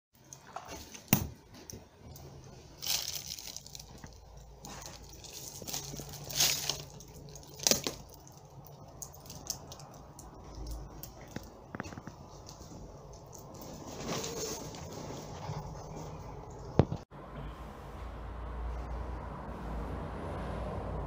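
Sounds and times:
rubbish crunching underfoot: 0.3s - 17.0s.

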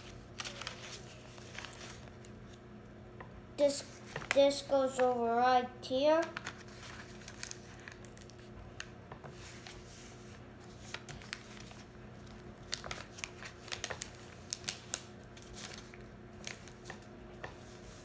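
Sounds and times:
paper being folded and creased: 0.0s - 2.6s, 3.8s - 4.4s, 6.2s - 8.4s, 9.3s - 18.0s.

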